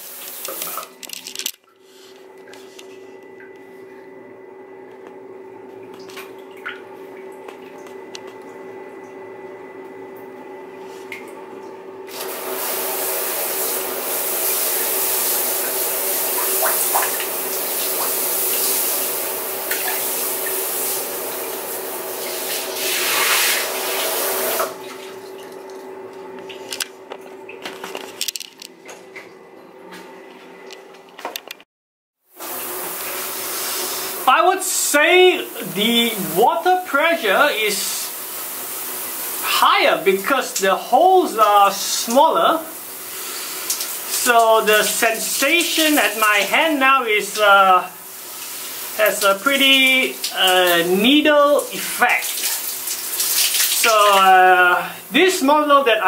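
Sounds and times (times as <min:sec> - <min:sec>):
constant hum: 0:00.1 - 0:12.1
shower head water hiss: 0:12.1 - 0:24.7, 0:32.4 - 0:55.5.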